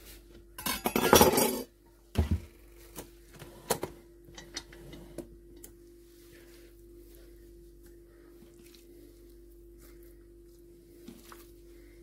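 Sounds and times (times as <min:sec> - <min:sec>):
utensils clinking and tapping: 0:00.6 - 0:01.7.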